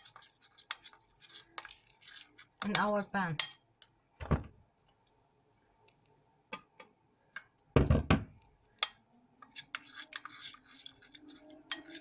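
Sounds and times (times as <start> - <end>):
metal utensil scraping ceramic bowl: 0.0 - 3.9, 8.8 - 12.0.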